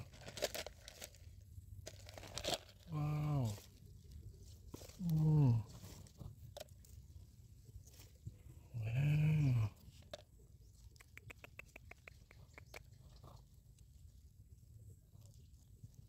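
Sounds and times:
hand digging through soil: 0:00.0 - 0:08.4.

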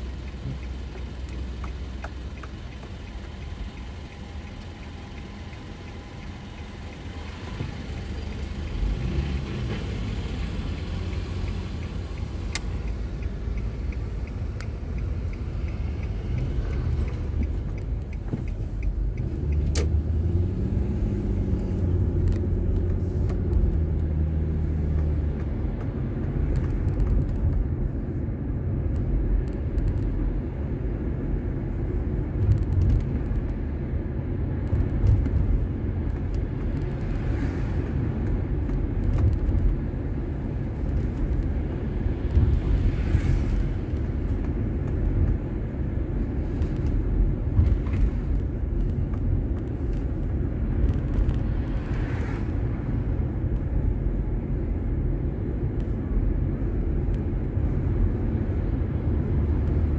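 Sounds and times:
car engine: 0:00.0 - 0:59.9
road noise: 0:00.0 - 0:59.9.

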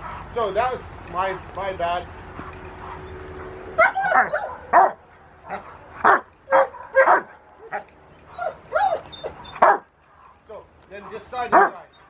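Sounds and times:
dog barking: 0:03.8 - 0:07.8, 0:09.6 - 0:09.9, 0:11.5 - 0:11.8.

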